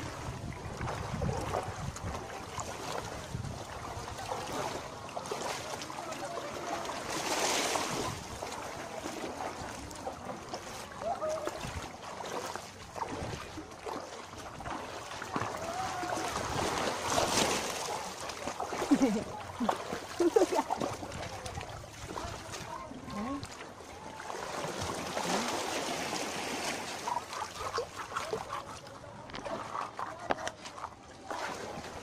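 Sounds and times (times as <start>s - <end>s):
wind noise on microphone: 0.0s - 4.3s
feet splashing through water: 0.0s - 32.0s
waves washing: 0.0s - 32.0s.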